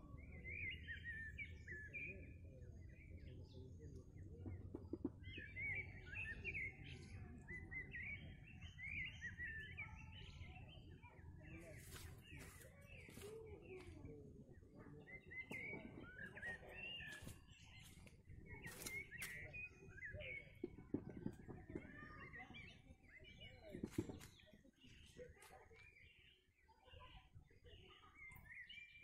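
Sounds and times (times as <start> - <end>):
songbirds chirping: 0.0 - 29.0.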